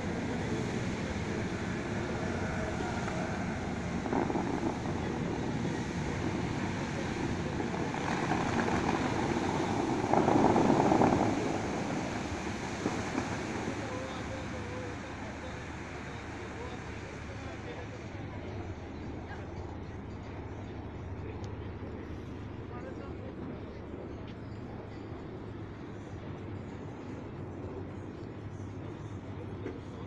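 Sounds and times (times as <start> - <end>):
fountain water jets splashing: 0.0 - 22.4.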